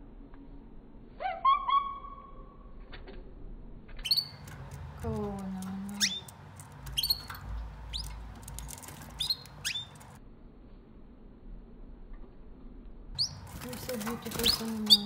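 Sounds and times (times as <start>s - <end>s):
canaries chirping: 4.0s - 10.2s, 13.2s - 15.0s.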